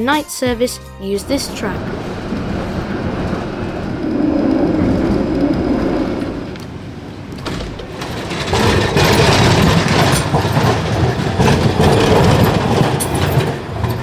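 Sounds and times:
tram wheels rumbling on rails: 0.0 - 14.0
tram wheel clicks: 1.3 - 14.0.

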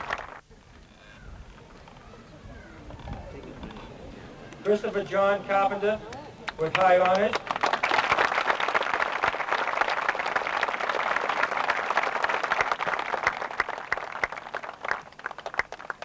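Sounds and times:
audience applauding: 0.0 - 0.4, 6.7 - 16.0.

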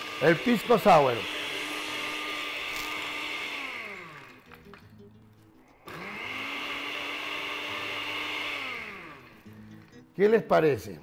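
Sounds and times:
blender motor running: 0.0 - 4.8, 5.7 - 9.7.

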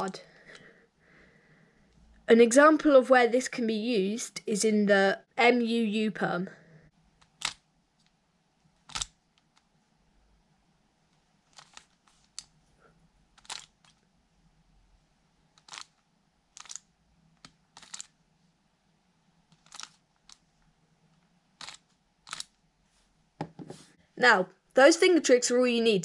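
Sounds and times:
puzzle cube turning clicks: 7.2 - 8.2, 8.8 - 9.7, 11.5 - 12.6, 13.3 - 14.0, 15.5 - 18.2, 19.5 - 20.5, 21.6 - 22.6.

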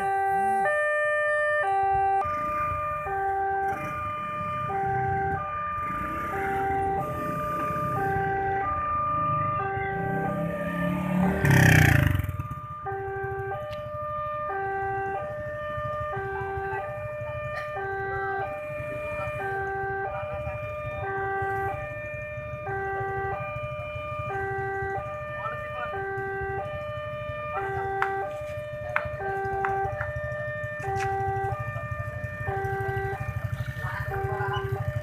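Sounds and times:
motorcycle engines idling: 1.6 - 35.0
level-crossing warning chime: 30.9 - 35.0.

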